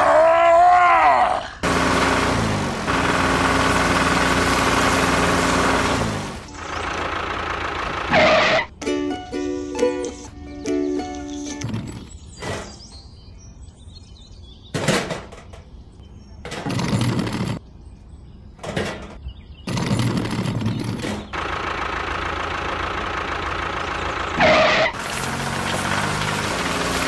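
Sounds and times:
gravel scraping: 24.3 - 27.0.

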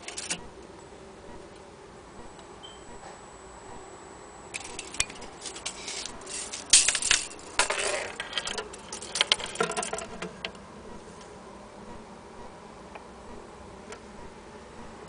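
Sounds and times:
tape measure rattling and scraping: 4.6 - 10.2.

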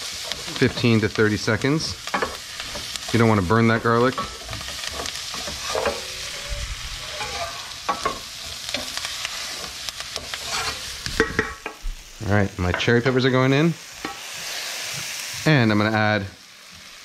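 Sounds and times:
wooden spoon stirring and scraping: 0.0 - 11.5
vegetables sizzling in a pan: 0.0 - 17.0
spoon knocking against pan: 11.2 - 11.8.

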